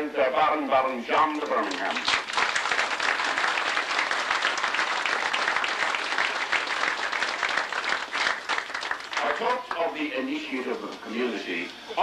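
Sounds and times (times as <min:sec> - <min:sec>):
crowd applauding: 0:01.5 - 0:10.2.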